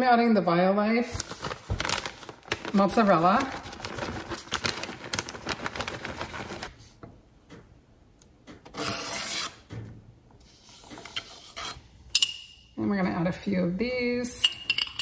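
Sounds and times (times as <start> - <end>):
plastic bag rustle: 1.1 - 6.9.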